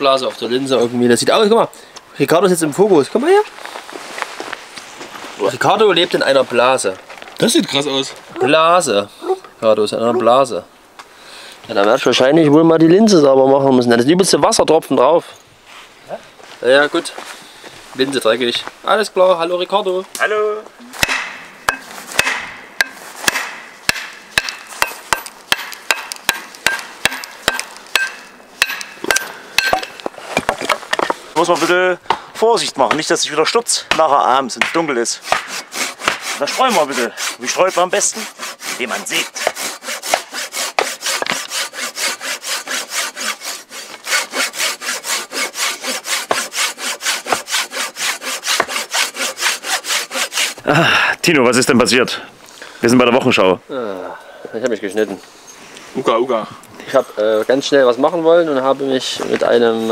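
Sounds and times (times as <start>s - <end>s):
hand saw cutting wood: 21.0s - 31.9s, 34.6s - 50.6s.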